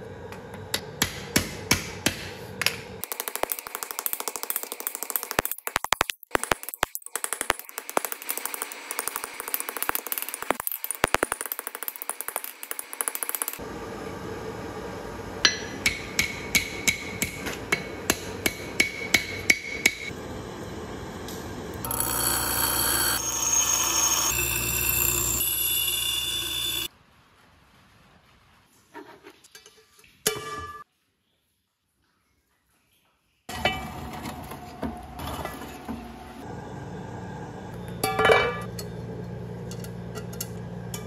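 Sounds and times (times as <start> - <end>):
hammer striking steel on anvil: 0.7 - 2.8, 15.4 - 20.1
bench grinder grinding steel: 21.8 - 26.9.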